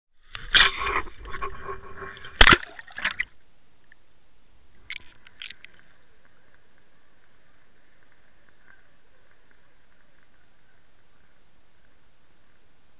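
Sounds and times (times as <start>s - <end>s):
sharp splash into lake: 2.4s - 3.3s.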